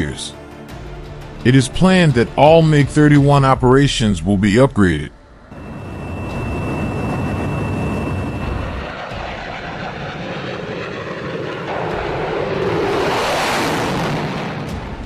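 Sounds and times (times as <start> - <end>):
jet engine passing: 5.2 - 15.0.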